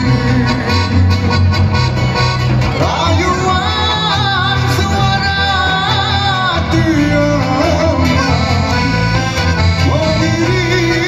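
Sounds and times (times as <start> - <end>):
bass guitar: 0.0 - 11.0
keyboard: 0.0 - 11.0
person singing: 2.7 - 9.2, 9.8 - 11.0.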